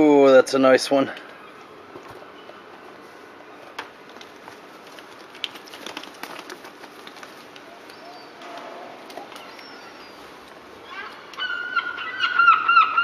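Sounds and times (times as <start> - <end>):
faint gull call: 10.8 - 13.0.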